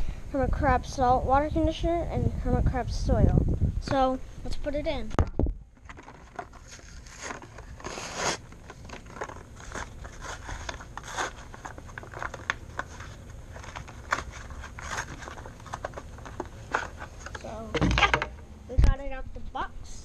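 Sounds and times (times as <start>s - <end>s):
packaging crinkling and clicking: 5.8s - 17.4s
packaging rustle: 5.8s - 17.5s.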